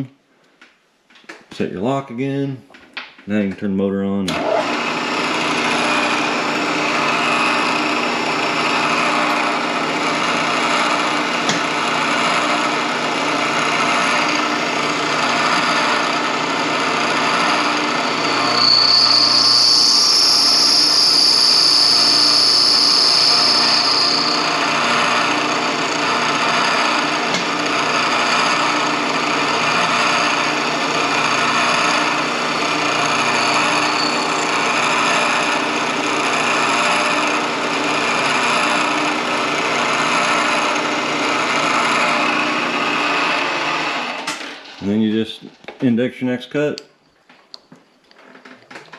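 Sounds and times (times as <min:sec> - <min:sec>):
motor hum: 0:04.3 - 0:45.0
milling machine grinding: 0:04.3 - 0:45.1
high steady squeal: 0:17.0 - 0:35.8.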